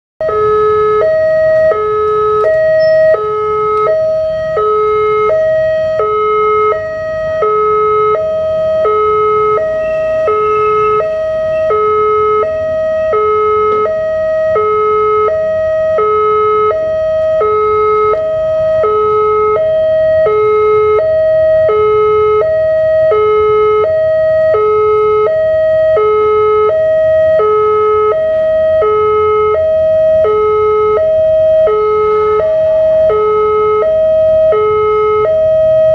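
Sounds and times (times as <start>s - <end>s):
level crossing two-tone alarm: 0.2s - 35.9s.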